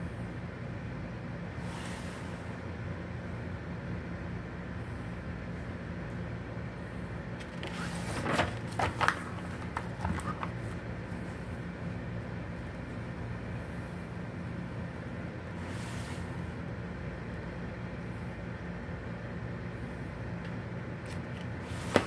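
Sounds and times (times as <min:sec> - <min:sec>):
steady low hum: 0:00.0 - 0:22.0
magazine page rustling: 0:07.4 - 0:10.8.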